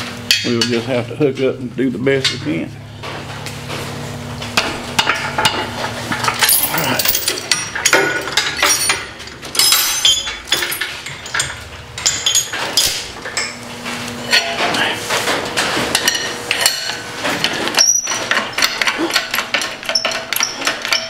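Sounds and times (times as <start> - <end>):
chain and hooks clanking on metal: 6.2 - 13.6, 16.1 - 21.0.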